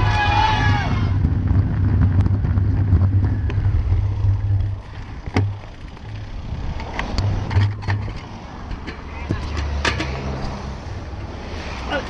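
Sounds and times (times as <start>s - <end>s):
wind on the microphone: 0.0s - 10.6s
car engine rumble: 0.0s - 12.0s
sharp clicks and knocks: 3.4s - 10.6s.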